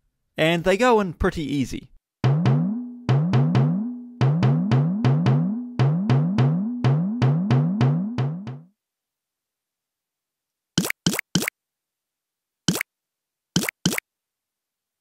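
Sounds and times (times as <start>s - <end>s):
drum thumps: 2.2s - 8.7s.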